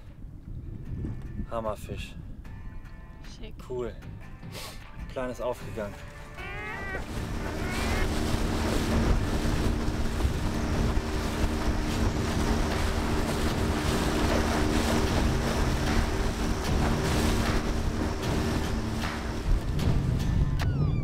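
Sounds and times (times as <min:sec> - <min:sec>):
wind buffeting microphone: 0:00.0 - 0:03.2, 0:06.4 - 0:20.6
motorboat engine humming: 0:05.6 - 0:21.0
gull call: 0:06.3 - 0:08.2.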